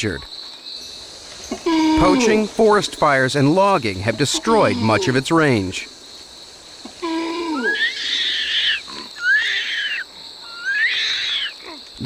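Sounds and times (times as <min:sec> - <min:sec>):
insects droning: 0:00.0 - 0:12.0
orangutan whimpering and squealing: 0:01.5 - 0:02.5, 0:06.9 - 0:11.8.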